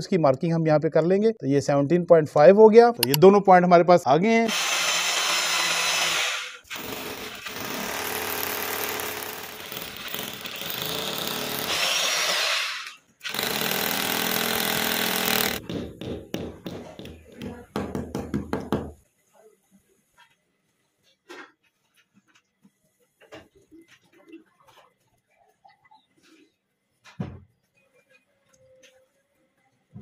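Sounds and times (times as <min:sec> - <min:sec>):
hammer drill boring into wall: 0:04.4 - 0:15.6.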